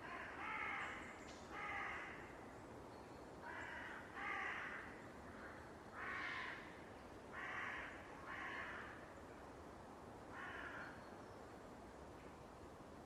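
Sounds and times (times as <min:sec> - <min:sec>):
crow cawing: 0:00.0 - 0:01.0, 0:01.6 - 0:02.2, 0:03.4 - 0:04.9, 0:06.0 - 0:06.7, 0:07.3 - 0:09.0, 0:10.3 - 0:10.9.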